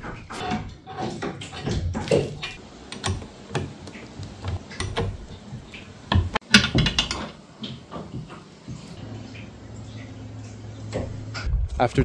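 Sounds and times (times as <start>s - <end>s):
hard objects clicking and knocking: 0.0s - 8.6s.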